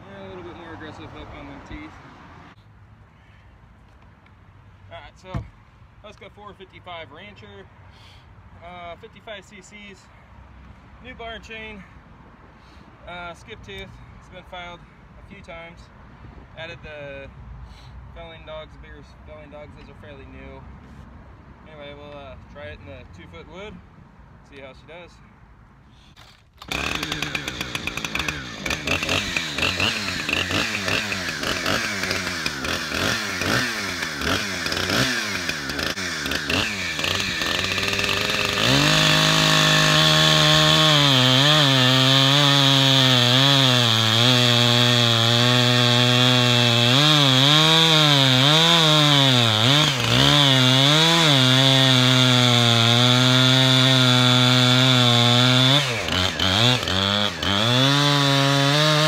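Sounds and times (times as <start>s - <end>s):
chainsaw cutting log: 26.1s - 59.0s.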